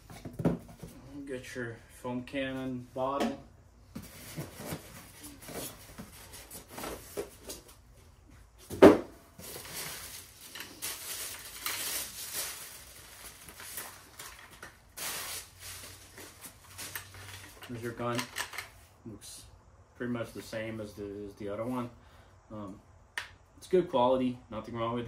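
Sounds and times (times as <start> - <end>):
plastic wrap rustling: 9.4 - 17.6
packing items handled in a box: 9.4 - 18.2.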